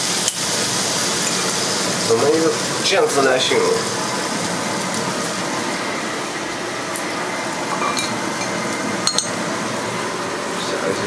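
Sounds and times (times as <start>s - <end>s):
food hissing in a wok: 0.0s - 8.4s.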